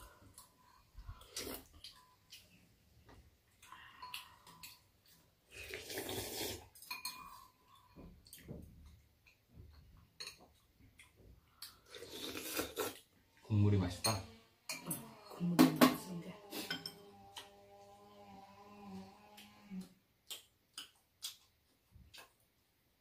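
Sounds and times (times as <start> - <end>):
slurping soup: 1.0 - 2.1, 5.4 - 7.6, 11.7 - 13.1
spoons scraping ceramic bowls: 5.5 - 8.0, 13.8 - 18.0.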